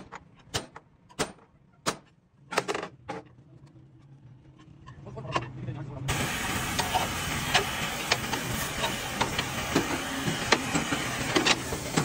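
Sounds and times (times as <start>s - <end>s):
steady hiss: 6.1s - 12.0s.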